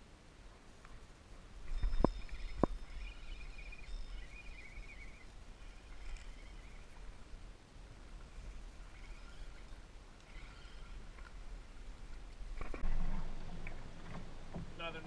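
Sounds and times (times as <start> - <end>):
wind rumble on microphone: 1.0 - 9.8
faint high chirping: 1.6 - 7.2, 8.8 - 11.0.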